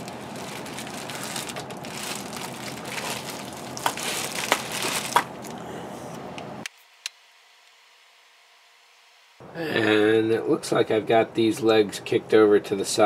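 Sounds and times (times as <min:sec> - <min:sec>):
bubble wrap crinkling: 0:00.0 - 0:05.6.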